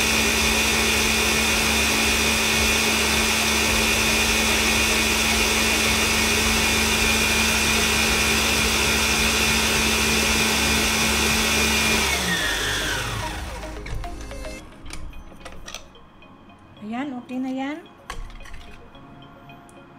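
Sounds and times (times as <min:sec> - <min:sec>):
electric mixer motor whining: 0:00.0 - 0:14.6.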